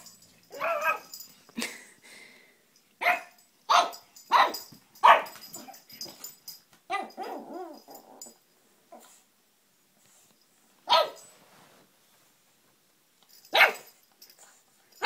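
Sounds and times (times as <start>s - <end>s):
puppy barking: 0.5s - 1.1s, 3.0s - 5.7s, 10.9s - 11.2s, 13.5s - 13.9s
puppy whining: 0.5s - 1.2s, 6.9s - 9.2s.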